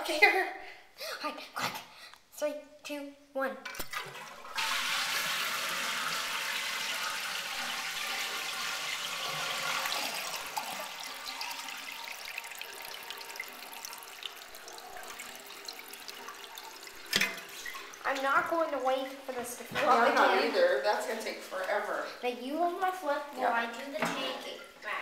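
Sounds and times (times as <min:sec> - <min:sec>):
toilet tank refilling: 0:03.8 - 0:21.3.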